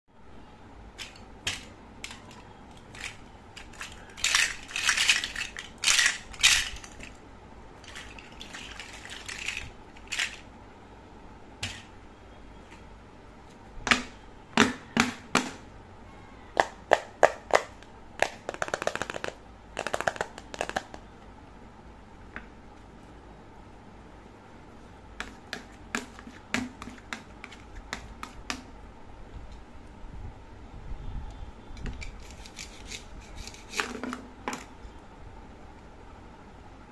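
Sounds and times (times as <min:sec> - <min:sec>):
plastic toys clicking and knocking: 0:01.0 - 0:07.2, 0:07.8 - 0:10.5, 0:16.6 - 0:21.1
rattling clatter of plastic toys: 0:01.0 - 0:07.2, 0:07.8 - 0:10.5.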